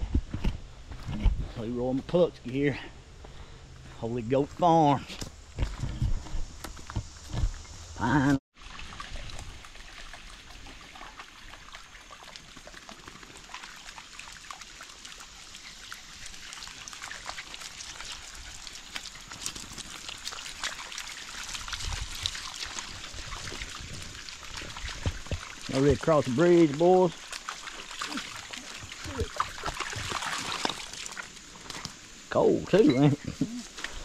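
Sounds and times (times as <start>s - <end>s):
water trickling over stones: 4.1s - 34.0s
dogs splashing through water: 8.6s - 32.1s.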